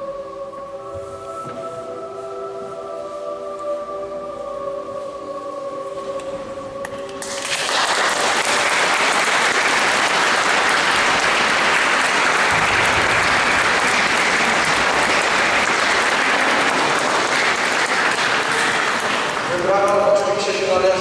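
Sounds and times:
audience applause: 7.2 - 19.7.

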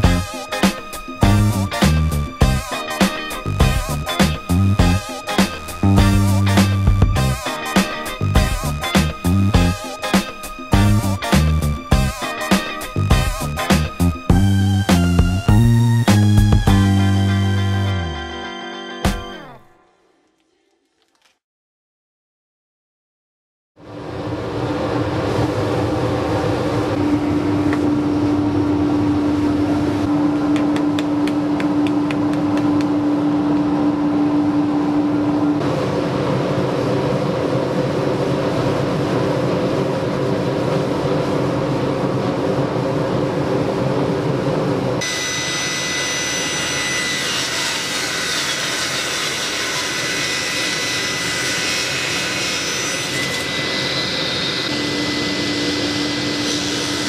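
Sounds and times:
table saw droning: 45.0 - 57.0.

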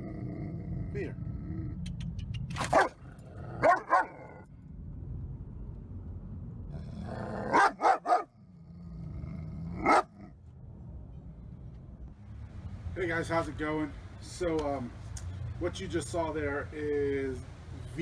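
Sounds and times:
dog barking: 2.7 - 3.0, 3.6 - 4.2, 7.5 - 8.3, 9.8 - 10.2.

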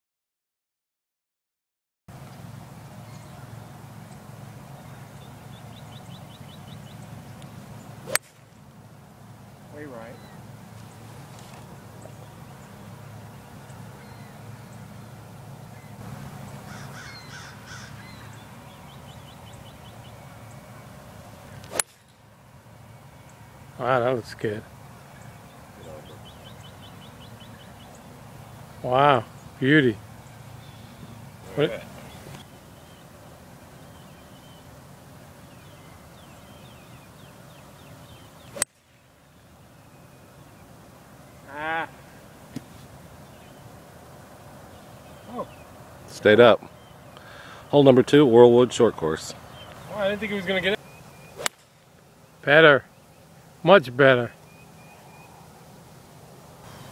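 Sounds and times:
bird calling: 3.0 - 43.8, 44.6 - 55.8
golf iron striking ball: 7.4 - 8.6, 21.6 - 22.3, 38.4 - 39.0, 51.3 - 52.0.

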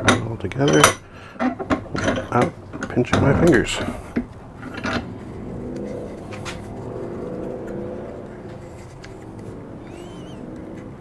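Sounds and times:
low engine-like hum: 3.5 - 11.0.

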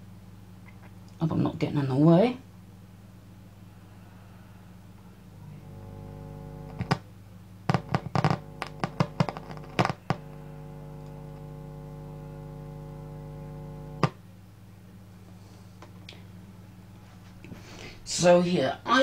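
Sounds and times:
amplifier mains hum: 0.0 - 19.0
crackling pops: 5.8 - 7.1, 7.7 - 14.2.

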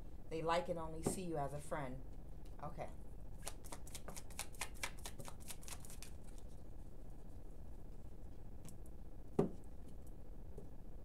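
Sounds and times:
cards being shuffled: 3.4 - 6.5.

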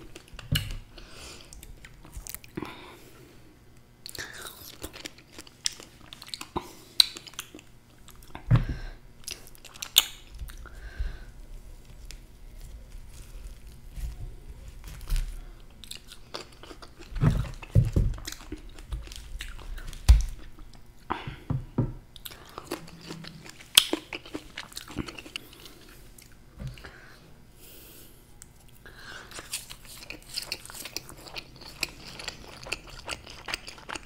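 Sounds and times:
close chewing and lip smacking: 4.0 - 8.5, 9.2 - 10.8, 15.6 - 21.1, 22.1 - 26.9, 28.4 - 34.0.

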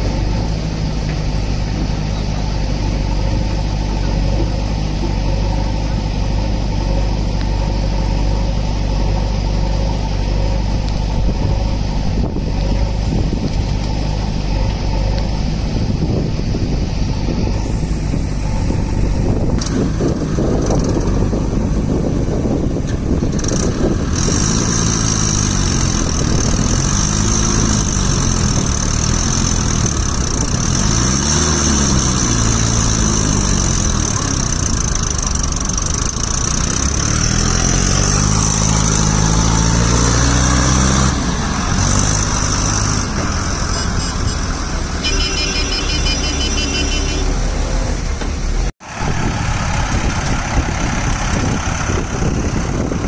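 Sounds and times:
backhoe diesel engine running: 0.0 - 53.0
tractor diesel engine labouring: 0.0 - 53.0.

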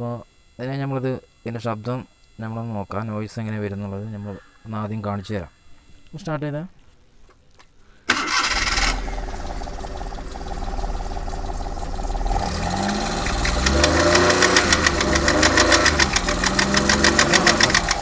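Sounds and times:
car engine cranking and starting: 8.1 - 18.0
engine running: 8.1 - 18.0
rhythmic ticking belt noise: 9.2 - 18.0.

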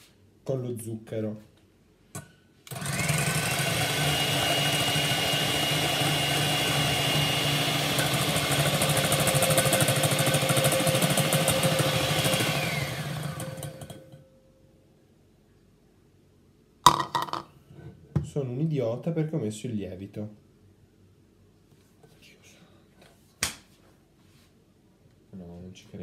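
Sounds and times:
electric hand mixer whisking: 2.7 - 14.0.

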